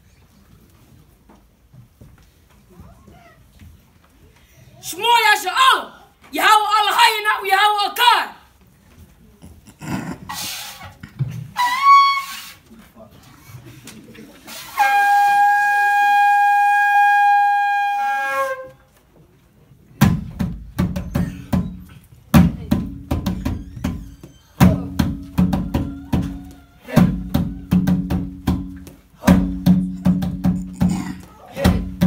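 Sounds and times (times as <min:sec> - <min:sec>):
shofar blast: 0:14.7 - 0:18.8.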